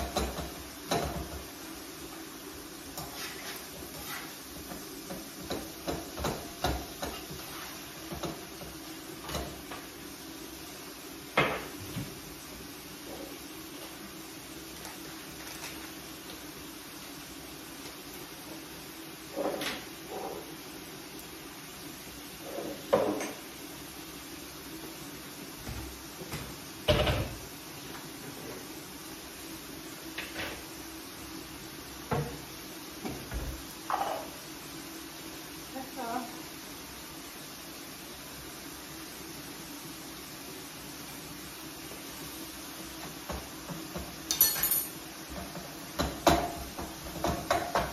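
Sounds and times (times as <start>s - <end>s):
items tapping on counter: 0.0s - 1.4s, 5.1s - 7.2s, 43.3s - 47.9s
spatula scraping frying pan: 2.9s - 5.8s, 6.9s - 8.0s.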